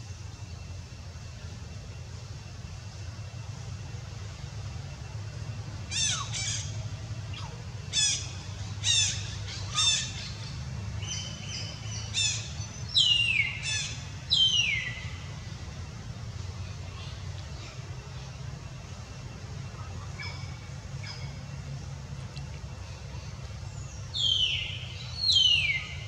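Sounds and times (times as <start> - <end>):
low background rumble: 0.0 - 26.0.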